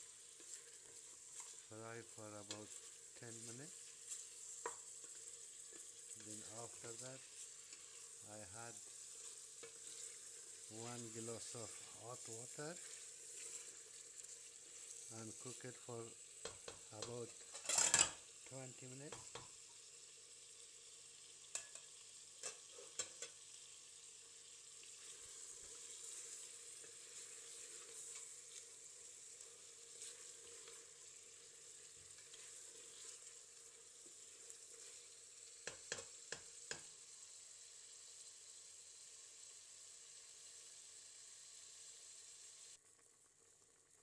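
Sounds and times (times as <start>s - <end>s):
food sizzling in pot: 0.0s - 44.0s
utensil clicking against pot: 35.6s - 36.9s.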